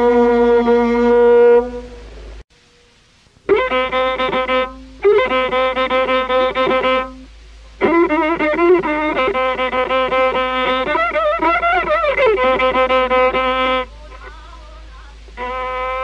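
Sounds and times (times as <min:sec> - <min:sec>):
bowed fiddle melody: 0:03.5 - 0:14.4, 0:15.4 - 0:16.0.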